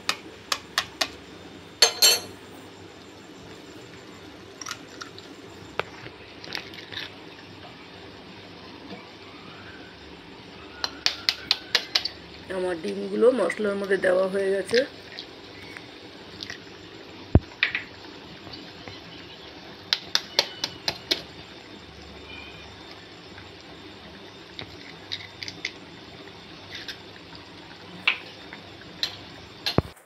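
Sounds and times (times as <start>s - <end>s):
gravy bubbling: 10.2s - 30.0s
eggs cracking clicks: 19.9s - 21.3s.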